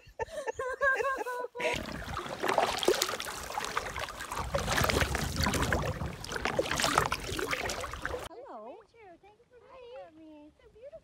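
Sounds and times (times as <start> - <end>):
paddles splashing: 1.6 - 8.3
water running along hull: 1.6 - 8.3.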